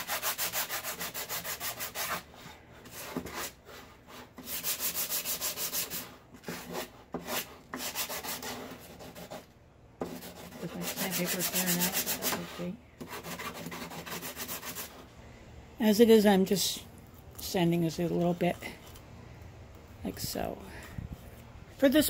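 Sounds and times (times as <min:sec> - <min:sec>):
sandpaper rubbing on wood: 0:00.0 - 0:15.0.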